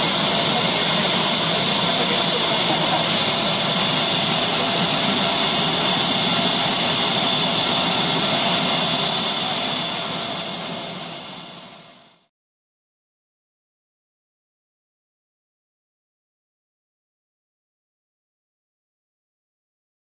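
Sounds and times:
jet engine hiss: 0.0 - 12.2
jet engine whine: 0.0 - 12.3.

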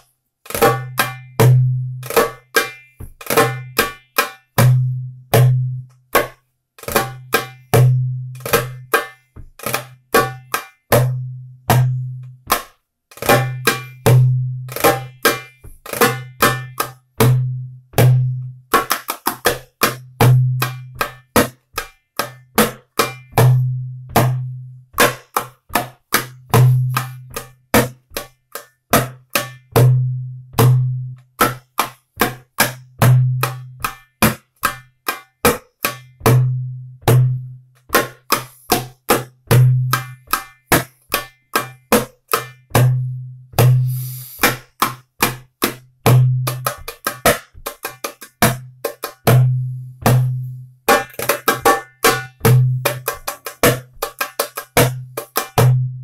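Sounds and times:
goblet drum played by hand: 0.4 - 56.0.

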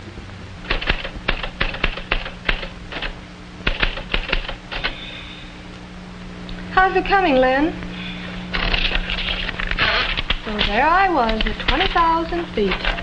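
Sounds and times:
typewriter keys clacking: 0.7 - 3.1, 3.7 - 5.0, 10.2 - 12.0.

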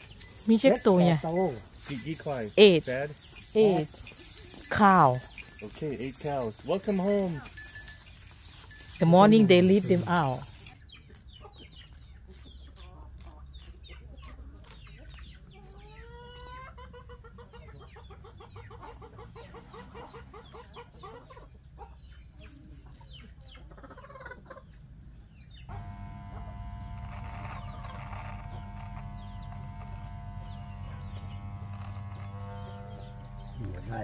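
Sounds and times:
chickens clucking: 0.0 - 34.0
electric hair clipper humming: 25.7 - 34.0.

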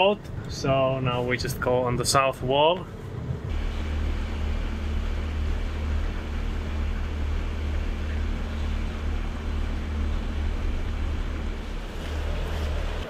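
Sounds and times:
boat engine rumbling: 0.0 - 13.0
faint steady hum: 0.0 - 13.0
even rushing noise: 3.4 - 13.0.

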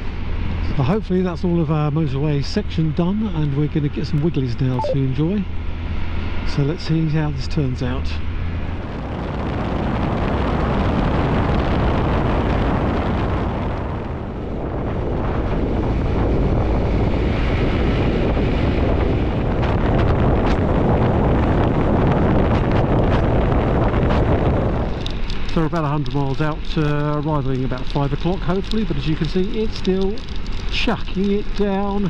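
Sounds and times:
wind buffeting microphone: 8.6 - 32.0.

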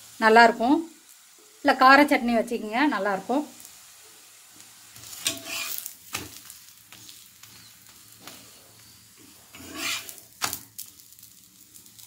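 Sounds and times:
faint sizzle of frying: 0.0 - 12.0
metal spatula scraping griddle: 5.0 - 7.6, 8.2 - 10.9.

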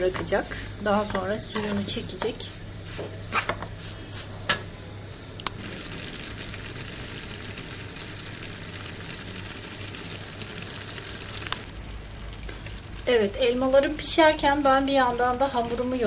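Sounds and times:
fruit sizzling in a frying pan: 0.0 - 16.0.

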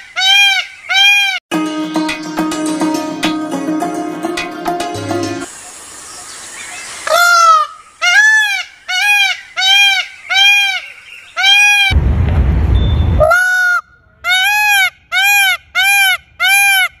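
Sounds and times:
peacock honking calls: 0.0 - 1.4, 7.0 - 12.0
low rumble: 11.9 - 13.3.

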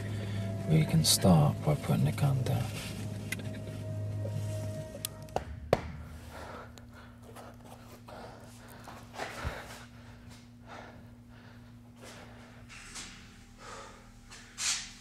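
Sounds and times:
faint steady hum: 0.0 - 15.0
sharp knocks: 5.4 - 6.2
man breathing heavily: 5.9 - 15.0.

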